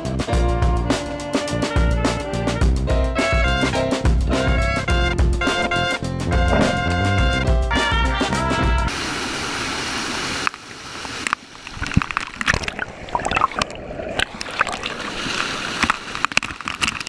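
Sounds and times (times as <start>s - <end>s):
water splashing and gurgling: 5.4s - 7.5s, 8.6s - 17.0s
waterfall rushing: 8.9s - 16.4s.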